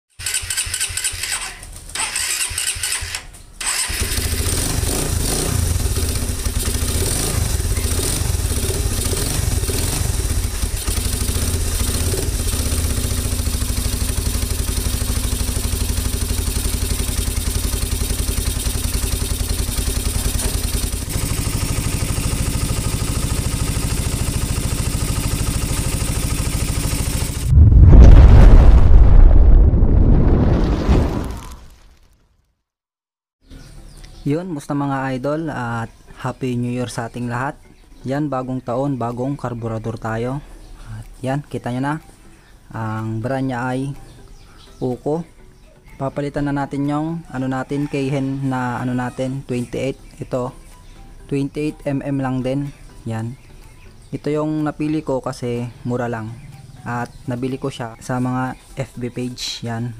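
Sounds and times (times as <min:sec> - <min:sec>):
motorcycle engine starting and idling: 0:00.2 - 0:27.5.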